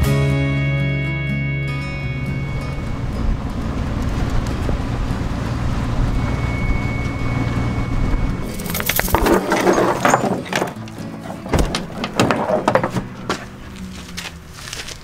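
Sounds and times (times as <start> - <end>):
car engine and road rumble: 0.0 - 15.0
clatter and knocks: 8.5 - 13.5.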